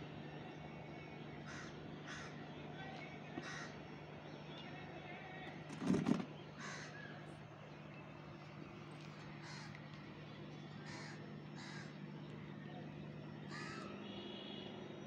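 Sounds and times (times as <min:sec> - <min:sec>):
crow cawing: 0:01.4 - 0:02.4, 0:03.4 - 0:03.8, 0:06.6 - 0:07.1, 0:09.4 - 0:09.8, 0:10.8 - 0:12.0, 0:13.5 - 0:13.9.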